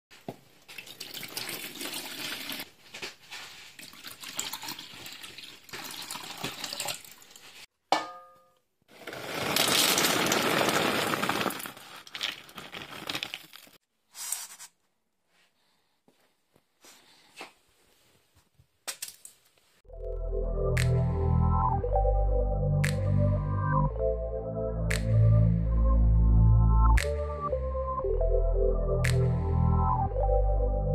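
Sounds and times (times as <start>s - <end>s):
water splashing into plastic bowl: 0.7s - 2.6s, 3.8s - 7.4s
steel bowl clang: 7.9s - 8.6s
kibble poured into steel bowl: 9.0s - 13.8s.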